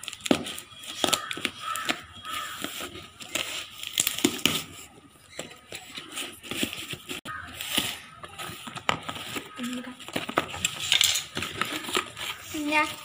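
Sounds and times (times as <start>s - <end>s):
cardboard crinkling: 0.0s - 13.0s
knife scraping cardboard: 0.4s - 4.7s.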